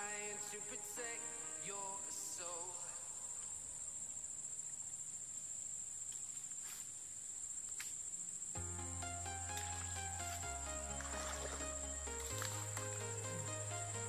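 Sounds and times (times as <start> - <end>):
insect buzz: 0.0 - 14.0
music: 8.6 - 14.0.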